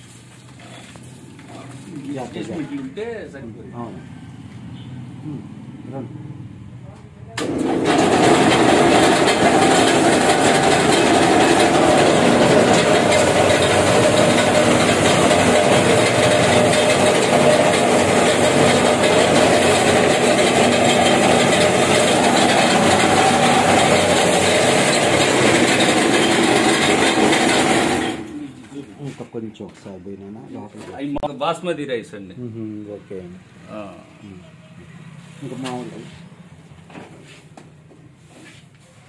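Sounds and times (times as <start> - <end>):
grain sheller running: 7.4 - 28.3.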